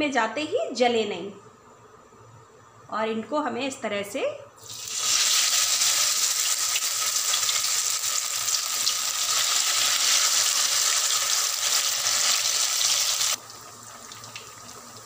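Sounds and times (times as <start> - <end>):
bread deep-frying in oil: 4.6 - 15.0.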